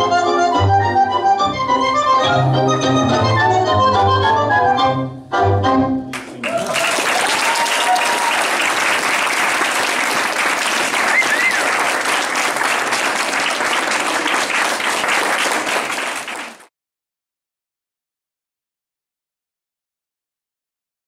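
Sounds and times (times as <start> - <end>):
audience applauding: 6.1 - 16.7.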